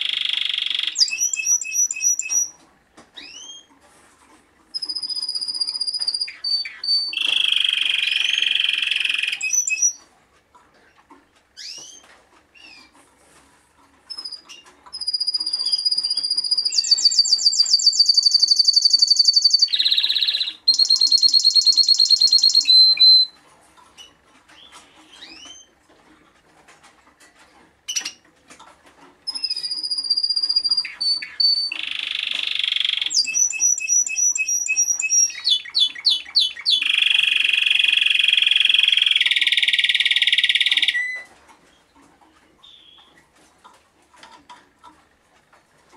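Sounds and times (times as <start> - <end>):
canary singing trills: 0.0 - 2.6, 3.2 - 3.7, 4.7 - 10.1, 11.6 - 12.9, 14.1 - 23.4, 24.0 - 25.7, 29.3 - 41.9, 42.6 - 43.2.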